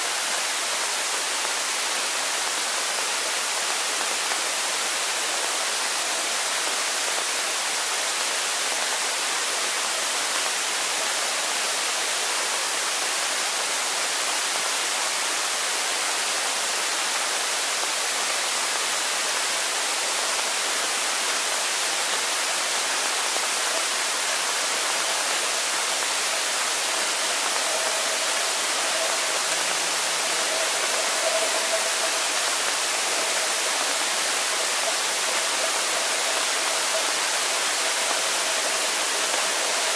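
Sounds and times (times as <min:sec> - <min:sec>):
underwater hiss: 0:19.4 - 0:39.9
faint steady tone: 0:21.9 - 0:39.9.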